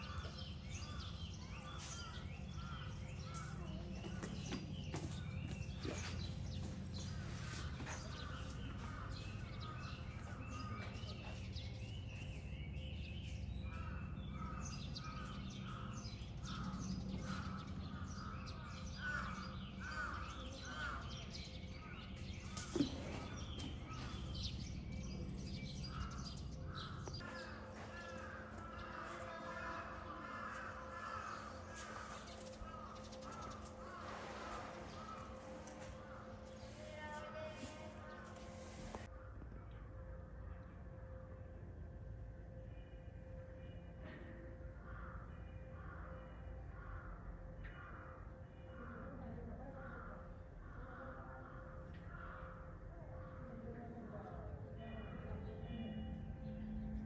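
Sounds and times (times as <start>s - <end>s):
crows cawing: 0.0s - 4.5s, 7.0s - 11.3s, 13.7s - 22.6s, 25.8s - 38.5s, 44.2s - 53.6s.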